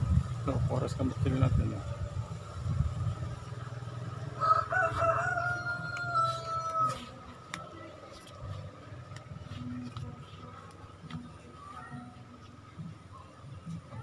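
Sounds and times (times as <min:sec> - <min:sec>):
rooster crowing: 0:04.3 - 0:07.2.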